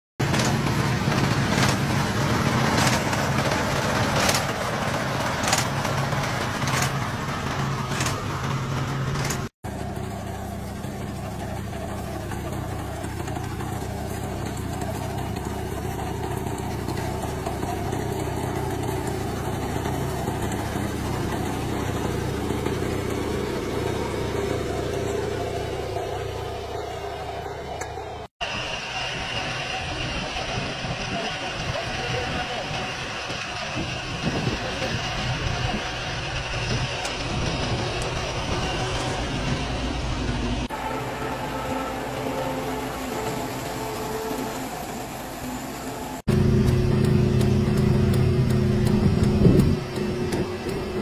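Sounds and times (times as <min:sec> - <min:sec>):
harvester engine running: 0:00.2 - 0:51.0
small engine running: 0:00.2 - 0:51.0
sharp mechanical clack: 0:05.4 - 0:05.8, 0:06.6 - 0:07.0, 0:07.8 - 0:09.5.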